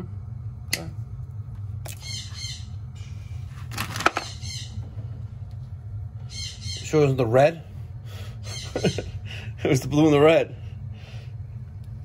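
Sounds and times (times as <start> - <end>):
parrot squawking: 1.9 - 2.7, 4.2 - 4.8, 6.3 - 7.0.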